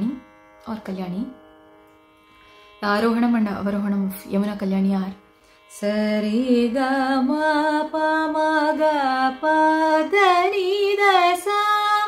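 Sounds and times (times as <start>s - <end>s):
woman singing a scale: 5.8s - 12.0s.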